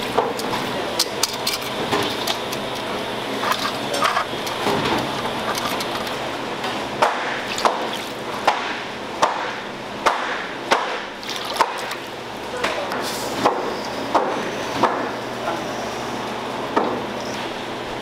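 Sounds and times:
water splashing into a steel bowl: 11.2s - 12.0s.

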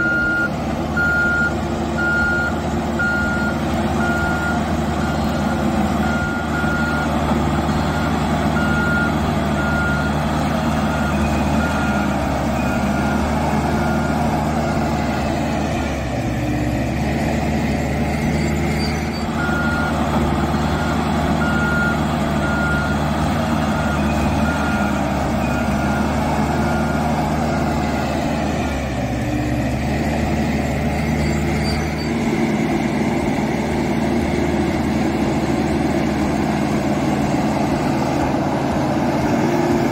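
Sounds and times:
reversing alarm beeping: 0.0s - 15.7s, 18.1s - 29.3s
diesel engine running: 0.0s - 39.9s.

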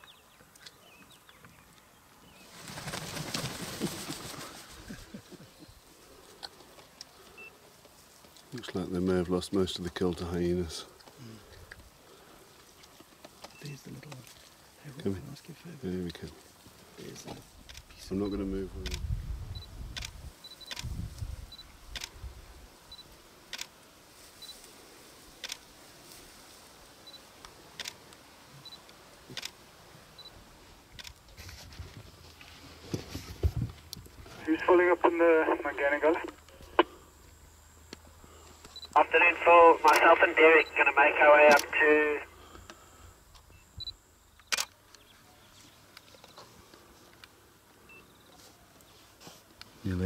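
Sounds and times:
camera shutter clicks: 27.8s - 28.0s, 41.5s - 41.7s, 44.4s - 44.8s
sharp click: 44.4s - 44.8s.

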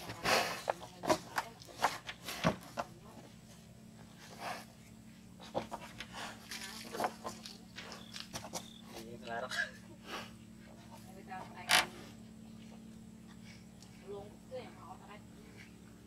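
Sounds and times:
buffalo crunching and tearing greens: 0.0s - 2.9s, 4.1s - 9.3s
low steady hum: 0.0s - 16.0s.

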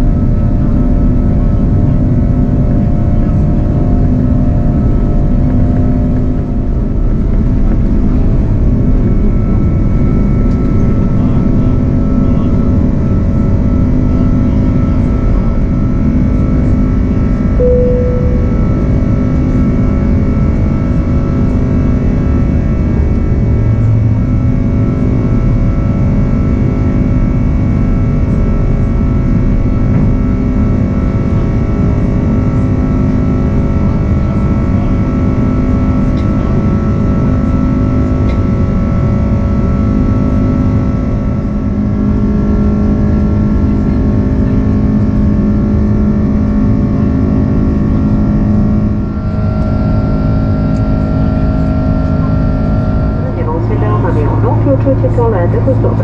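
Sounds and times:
jet engine rush in cabin: 0.0s - 56.0s
engine whining tones: 48.5s - 56.0s.

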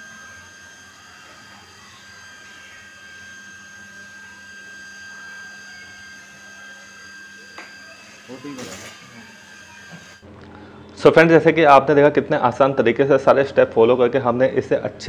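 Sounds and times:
high-pitched whining tones: 0.0s - 11.3s
machine humming: 0.0s - 12.3s.

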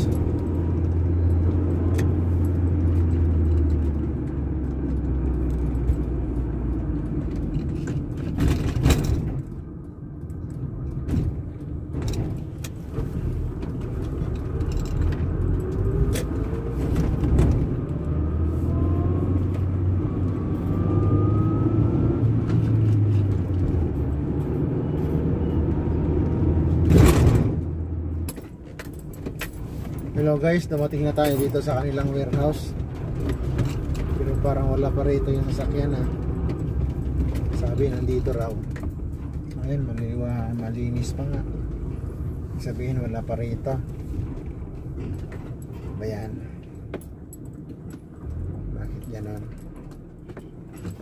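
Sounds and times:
car engine and road rumble: 0.0s - 51.0s
knocks and rattles: 2.8s - 9.8s.

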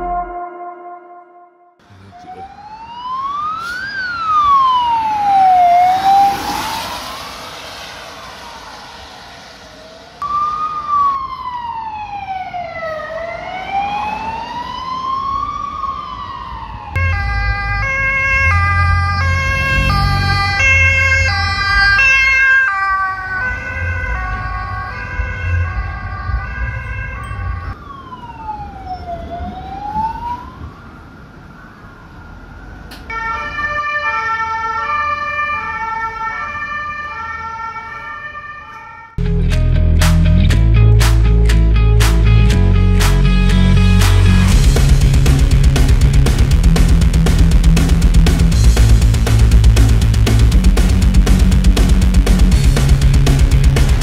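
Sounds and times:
two-tone siren horn: 0.0s - 9.6s, 15.9s - 30.7s, 33.1s - 39.2s
wailing siren: 0.0s - 39.2s
heavy engine rumble: 39.2s - 54.0s.

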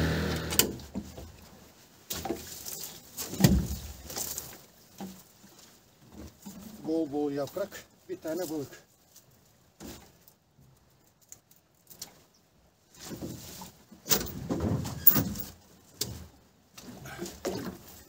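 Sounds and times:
wet net being handled: 2.0s - 12.3s.

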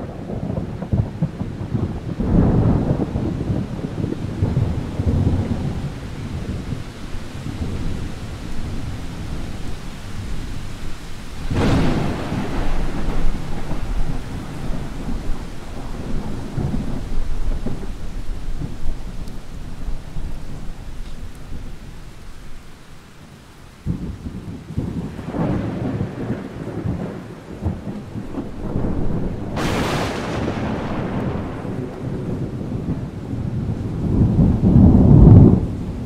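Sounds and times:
thunder rumbling: 0.0s - 22.7s, 23.8s - 36.0s
steady rain: 0.0s - 36.0s
sharp thunder crack: 11.4s - 19.1s, 23.9s - 36.0s.

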